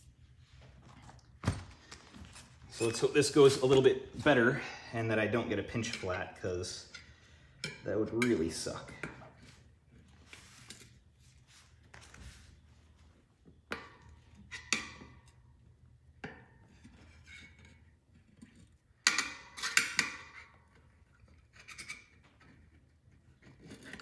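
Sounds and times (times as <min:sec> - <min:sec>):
tire spoons scraping and clicking: 0:05.2 - 0:11.2.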